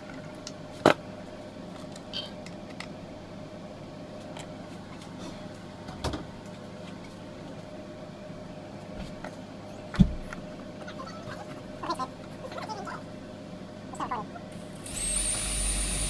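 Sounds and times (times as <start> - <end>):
electrical hum: 0.0 - 16.0
cordless drill whirring: 14.8 - 16.0.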